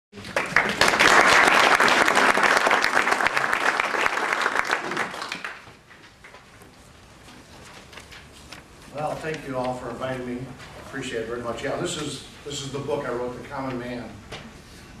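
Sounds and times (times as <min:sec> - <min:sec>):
audience applauding: 0:00.2 - 0:05.8.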